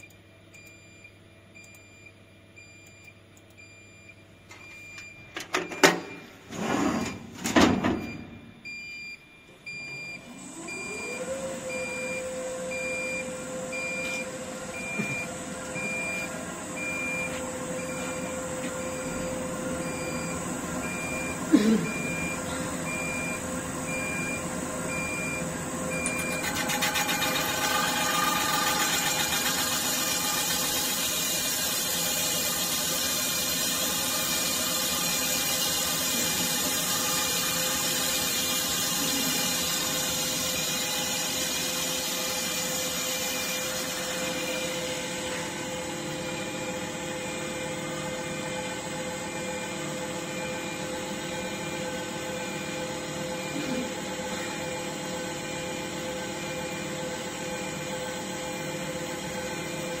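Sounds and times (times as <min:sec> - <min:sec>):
lathe machining a wheel: 0:22.1 - 1:00.0.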